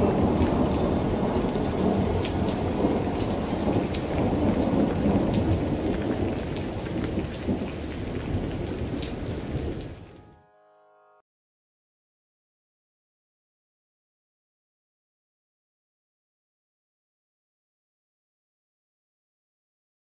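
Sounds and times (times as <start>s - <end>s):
rumbling thunder: 0.0s - 10.1s
heavy rain: 0.0s - 10.3s.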